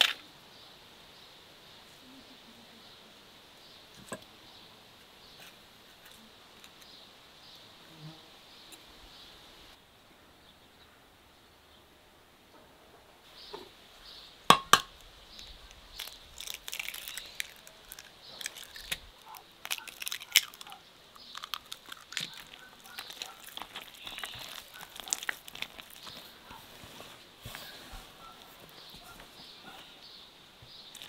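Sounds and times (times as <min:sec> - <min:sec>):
hand kneading dough in a bowl: 0:21.7 - 0:29.2.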